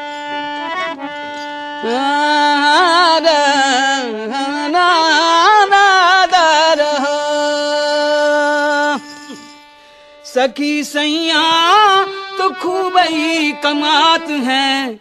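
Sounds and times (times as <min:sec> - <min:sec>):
harmonium drone: 0:00.0 - 0:15.0
wordless sliding folk vocal: 0:10.2 - 0:15.0.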